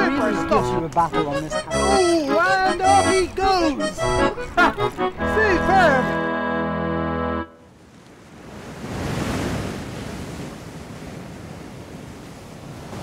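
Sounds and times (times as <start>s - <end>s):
accordion chord: 0.0s - 7.7s
sea waves breaking on rocks: 7.8s - 13.0s.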